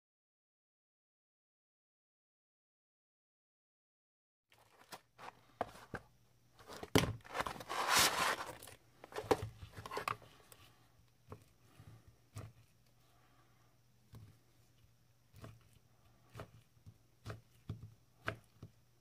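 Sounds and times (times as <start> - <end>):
crisp rustling scrape: 4.6 - 10.4
knife cutting crisp crust: 6.7 - 10.1.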